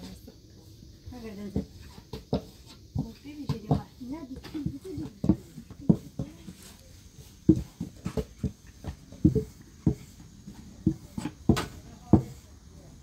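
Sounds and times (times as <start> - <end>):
rolling pins knocking on dough: 3.0 - 6.7, 7.4 - 12.4.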